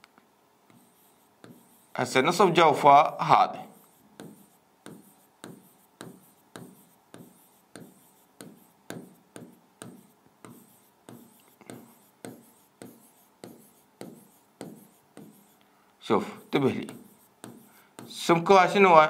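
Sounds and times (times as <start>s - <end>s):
stylus tapping on screen: 3.8s - 15.6s, 16.8s - 18.2s.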